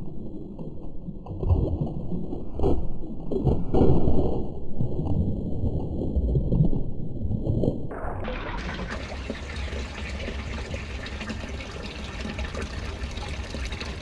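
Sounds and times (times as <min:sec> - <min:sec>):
water trickling and lapping: 0:08.2 - 0:14.0.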